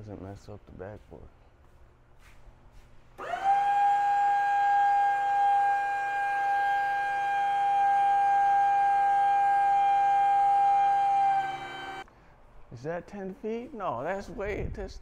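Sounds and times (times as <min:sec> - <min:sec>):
hydraulic pump whine: 0:03.2 - 0:12.1.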